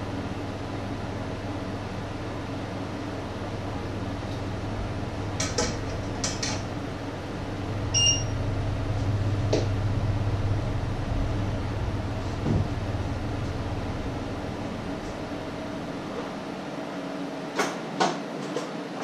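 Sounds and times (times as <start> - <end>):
steady low hum: 0.0 - 17.6
short electronic beep: 7.9 - 8.4.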